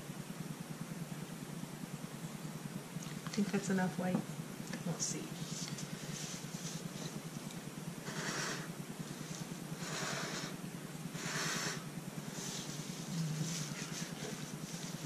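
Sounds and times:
steady low hum: 0.0s - 15.0s
person blowing puffs of breath: 9.8s - 12.8s.

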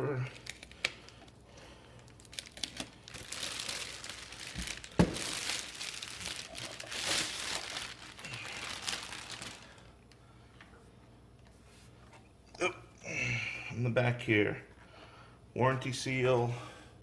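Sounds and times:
plastic bag crinkling: 0.3s - 1.4s, 2.0s - 9.9s.

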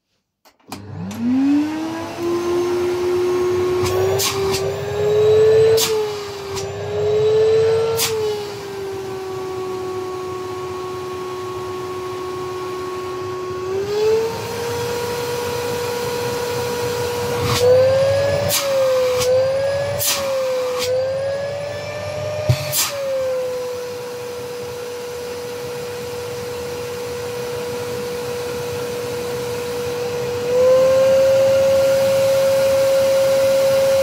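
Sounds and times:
vacuum cleaner motor: 0.6s - 34.0s.

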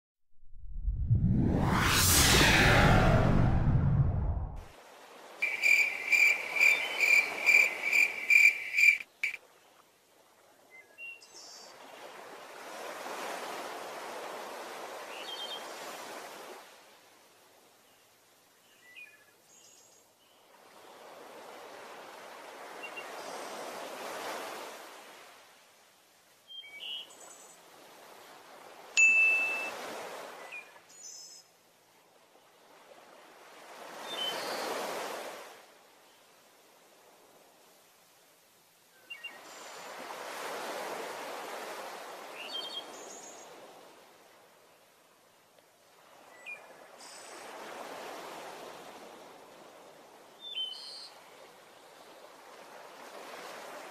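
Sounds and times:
bright ringing pings: 29.0s - 29.8s.

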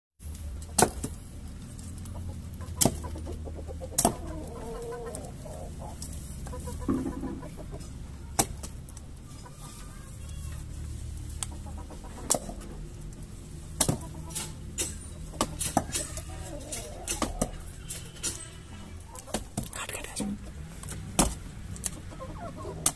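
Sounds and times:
axe chopping wood: 0.6s - 1.2s, 2.8s - 3.1s, 3.9s - 4.3s, 8.4s - 8.8s, 13.8s - 14.1s, 21.1s - 21.4s
bird clucking: 1.9s - 10.7s, 11.3s - 18.2s, 21.8s - 22.9s.

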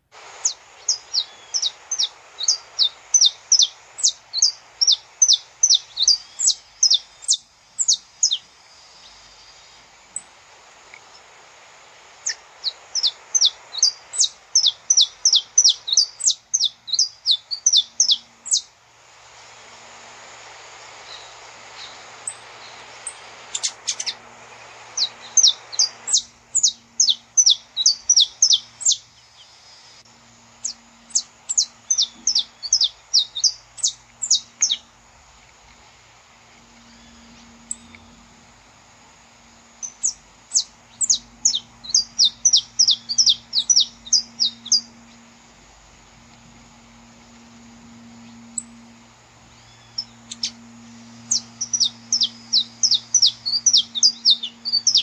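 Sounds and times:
soft hiss: 0.0s - 55.0s
finch chirping: 0.4s - 9.2s, 12.2s - 18.7s, 21.1s - 29.0s, 30.6s - 34.9s, 36.8s - 37.9s, 39.8s - 45.2s, 48.2s - 48.8s, 49.5s - 55.0s.

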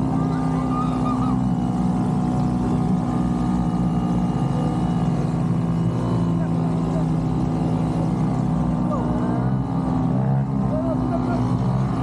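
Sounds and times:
small boat engine running: 0.0s - 12.0s.

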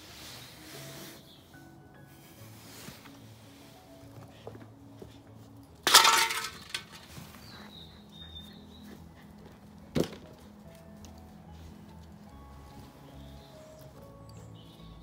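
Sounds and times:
faint background music: 0.0s - 15.0s.

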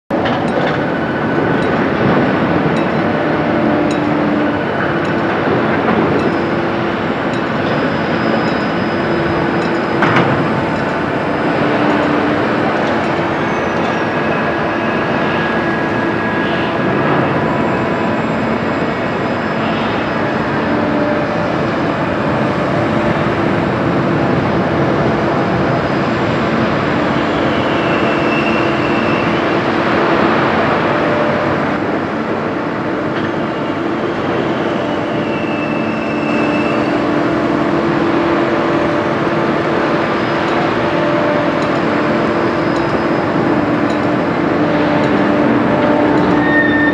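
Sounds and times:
crane machinery humming: 0.1s - 46.9s
brief high squeals: 46.3s - 46.9s.

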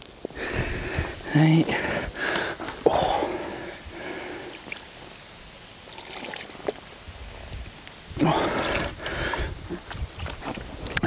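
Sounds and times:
water splashing and dripping: 2.2s - 11.0s
fish thrashing: 8.2s - 11.0s.

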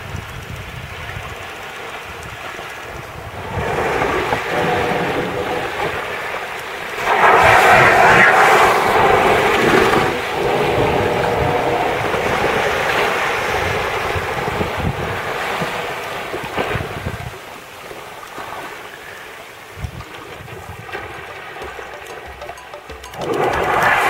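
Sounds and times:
sea noise: 0.0s - 24.0s
wind: 0.0s - 24.0s
rushing whoosh: 7.0s - 14.8s.

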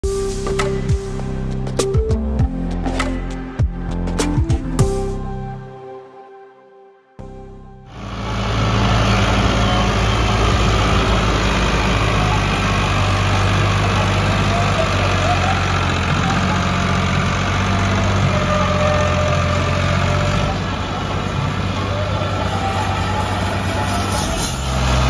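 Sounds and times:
tractor diesel engine under load: 7.8s - 25.0s.

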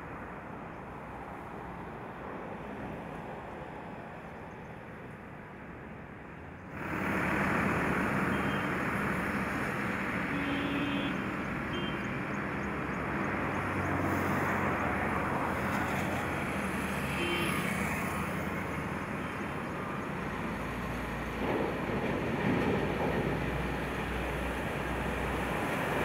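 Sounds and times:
tyre noise from passing vehicles: 0.2s - 26.0s
truck engines running: 6.5s - 26.0s.

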